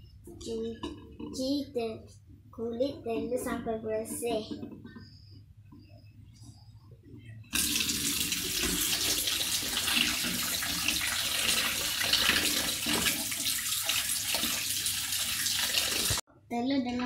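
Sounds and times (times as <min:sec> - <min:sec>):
water running into sink: 0:07.5 - 0:16.2.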